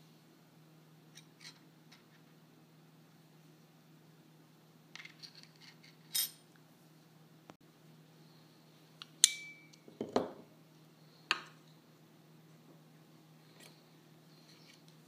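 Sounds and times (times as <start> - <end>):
sharp metal click with ring: 9.2 - 9.8.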